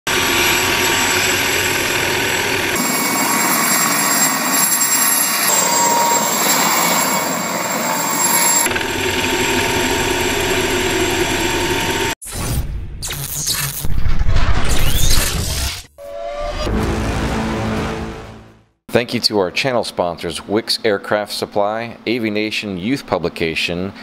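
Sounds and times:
helicopter engine and rotor: 0.1 - 12.2.

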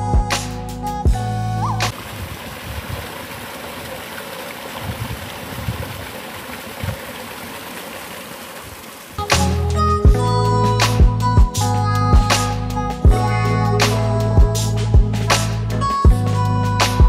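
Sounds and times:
stream splashing over cascade: 1.8 - 9.6
guitar music: 9.3 - 17.0.

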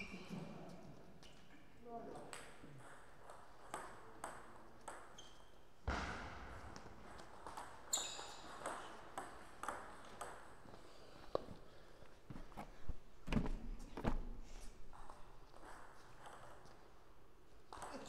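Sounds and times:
heavier thump: 5.9 - 7.2.

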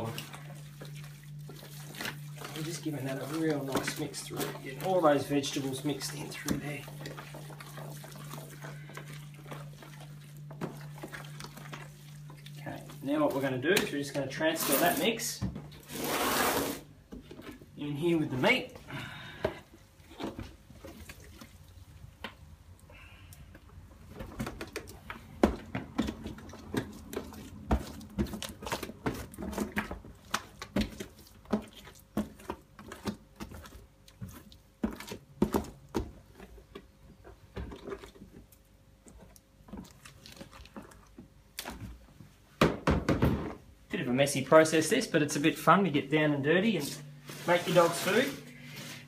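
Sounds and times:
wet squelches and plops: 0.0 - 14.0, 20.1 - 42.0.

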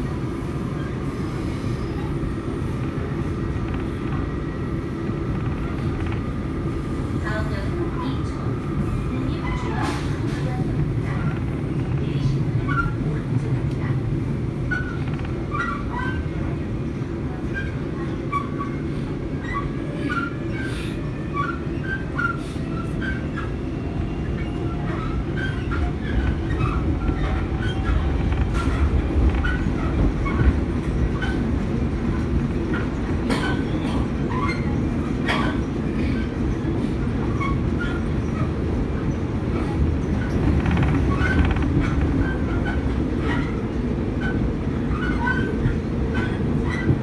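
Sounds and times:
train wheels rumbling on rail: 0.0 - 47.0
track clicks and knocks: 2.8 - 4.3, 5.1 - 6.4, 14.7 - 15.9, 24.4 - 35.6, 38.4 - 47.0.

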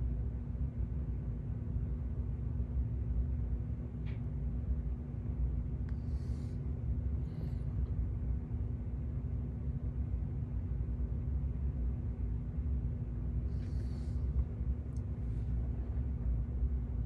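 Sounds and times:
low hum and rumble of room: 0.0 - 17.0.

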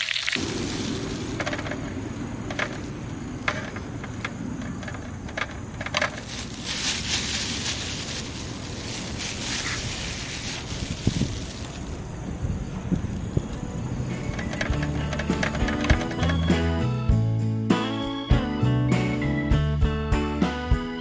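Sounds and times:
high hiss: 0.0 - 16.2
wind rumble on microphone: 7.0 - 16.4.

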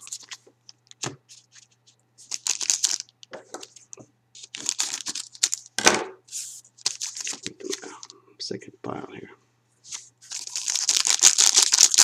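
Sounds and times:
foil wrappers crinkling: 0.0 - 0.4, 1.4 - 3.8, 4.4 - 5.7, 6.8 - 8.1, 9.9 - 12.0
scissors cutting foil pack: 10.4 - 12.0.

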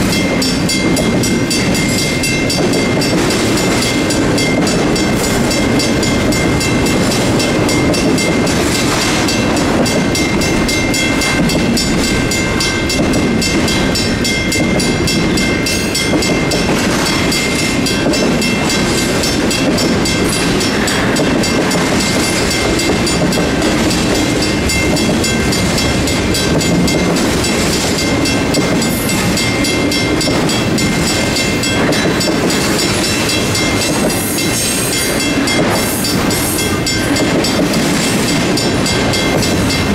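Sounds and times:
electronic crossing bell: 0.0 - 39.9
freight train wheels clacking: 0.0 - 39.9
mechanical crossing bell: 0.0 - 39.9.

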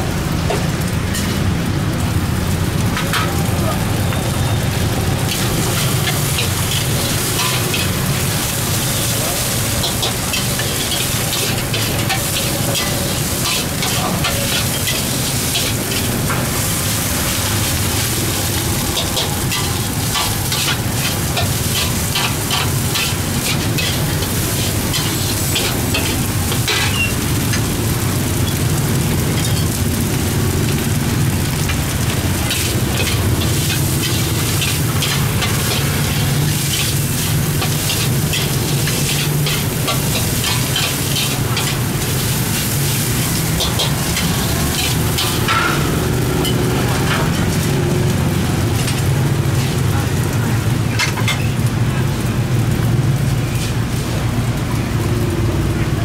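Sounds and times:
rice sizzling in a wok: 0.0 - 56.0
metal ladle scraping a wok: 32.4 - 46.6.

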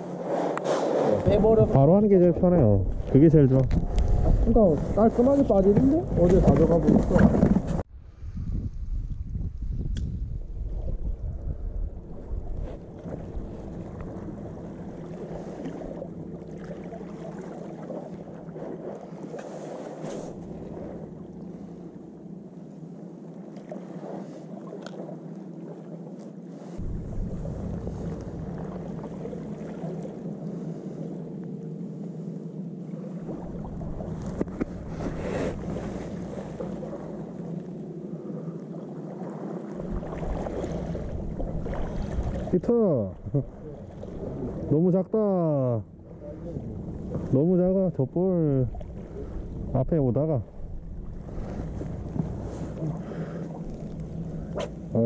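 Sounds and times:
water noise: 0.0 - 55.0
wind: 0.0 - 55.0
steady low hum: 25.1 - 55.0
low engine drone: 26.8 - 38.9, 39.7 - 55.0
sea water washing against rocks: 33.0 - 38.0, 38.6 - 42.6.

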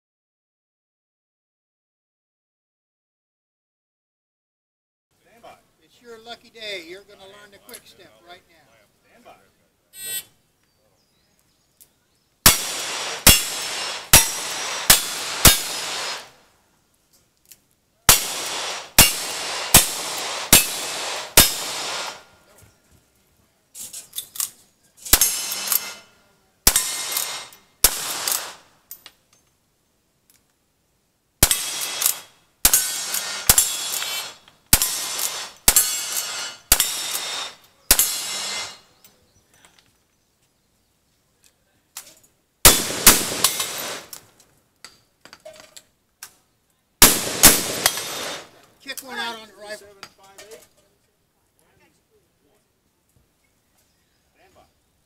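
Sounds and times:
gunshots: 12.4 - 16.3, 18.1 - 22.3, 25.1 - 26.0, 26.7 - 28.7, 31.4 - 38.8, 42.6 - 44.1, 47.0 - 48.6.

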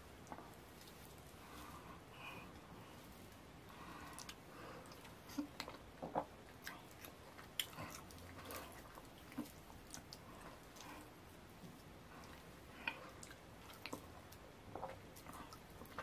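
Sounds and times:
wet chewing: 4.1 - 16.0.

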